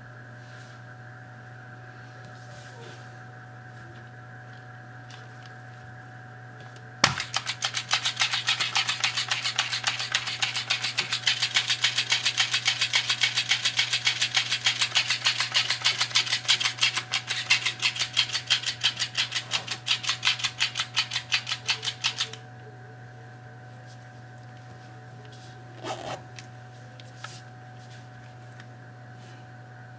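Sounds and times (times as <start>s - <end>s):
toy fish tail flapping: 7.2s - 22.4s.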